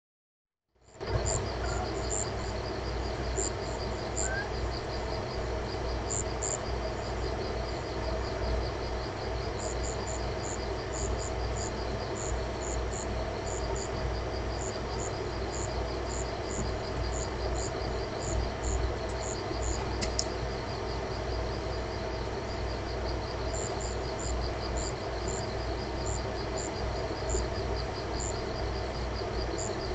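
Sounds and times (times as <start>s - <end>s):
low steady rumble: 0.8s - 29.9s
night insects trilling: 0.8s - 29.9s
higher paired chirps: 3.4s - 4.8s.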